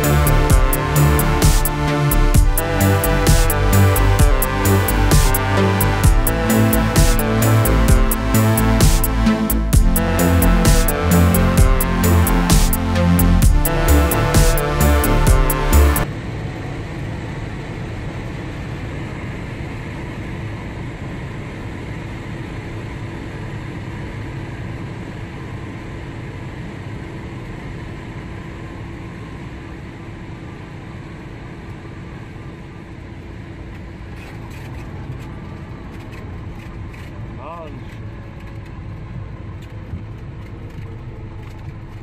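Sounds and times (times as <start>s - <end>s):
propeller plane engine in cabin: 0.0s - 42.0s.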